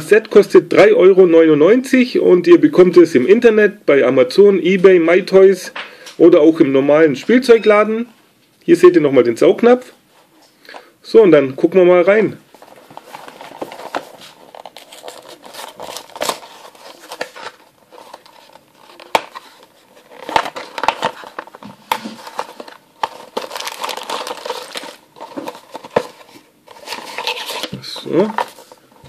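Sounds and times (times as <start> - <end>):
cardboard scraping and crackling: 12.6 - 28.8
plastic bag crinkling: 12.6 - 28.8.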